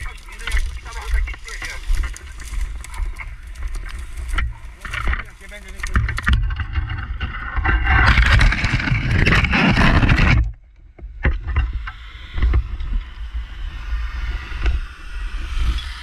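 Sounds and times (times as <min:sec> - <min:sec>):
dry grass rustling and scraping: 0:00.0 - 0:10.5
low rumble of movement and wind: 0:00.0 - 0:16.0.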